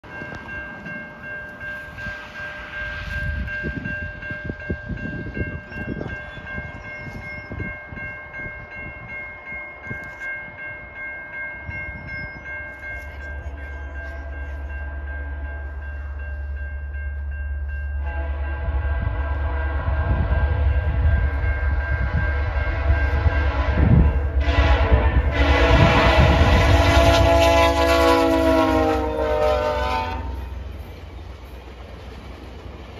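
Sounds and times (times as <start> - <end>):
crossing bell dinging: 0.0 - 32.9
diesel locomotive drone: 0.0 - 32.9
wind buffeting microphone: 2.8 - 10.9, 18.6 - 28.6.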